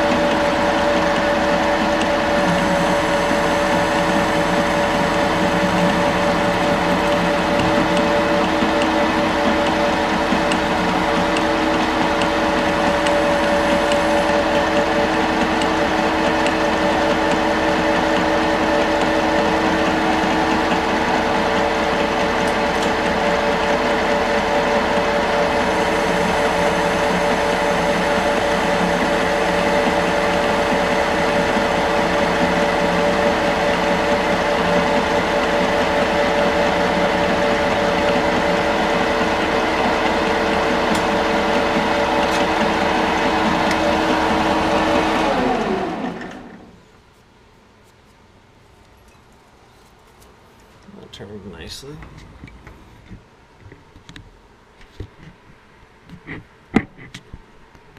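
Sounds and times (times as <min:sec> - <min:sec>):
lathe whine: 0:00.0 - 0:46.8
tool cutting metal: 0:25.5 - 0:45.2.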